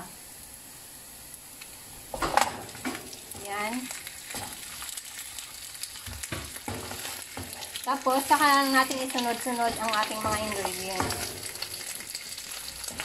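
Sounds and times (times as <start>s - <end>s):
meat sizzling in hot oil: 0.0s - 13.0s
knocks in a pan: 6.0s - 7.7s, 9.2s - 12.0s.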